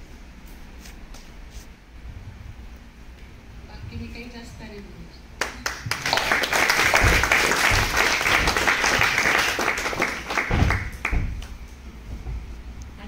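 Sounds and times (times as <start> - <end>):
audience applauding: 5.4 - 11.5.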